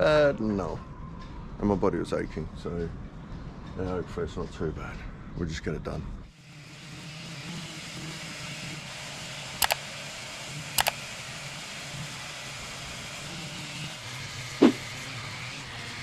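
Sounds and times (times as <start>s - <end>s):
electric power sander running: 6.4s - 16.0s
sharp double clicks: 10.8s - 11.0s.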